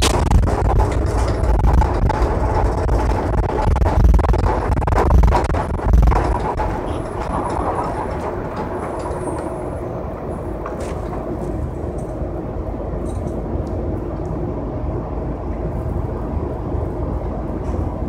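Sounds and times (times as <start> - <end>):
vehicle rumble from inside cabin: 0.0 - 18.0.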